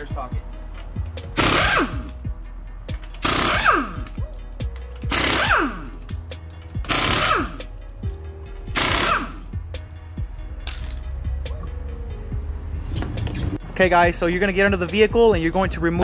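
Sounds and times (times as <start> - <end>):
pneumatic impact wrench: 1.3 - 2.2, 3.0 - 4.2, 5.0 - 6.1, 6.8 - 7.7, 8.7 - 9.5.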